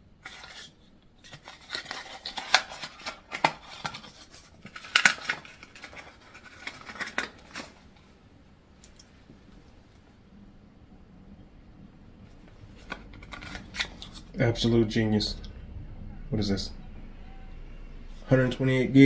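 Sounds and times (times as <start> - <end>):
cardboard scraping and rustling: 0.2 - 7.8.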